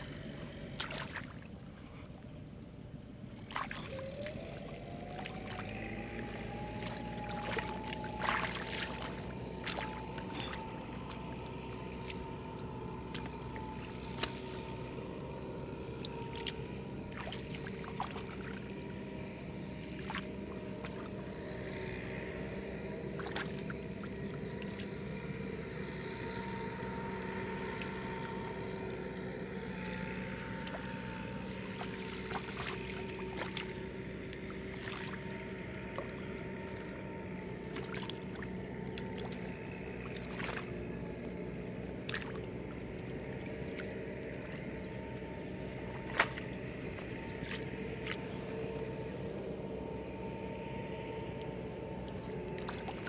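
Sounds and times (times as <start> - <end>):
motor running: 0.0 - 53.0.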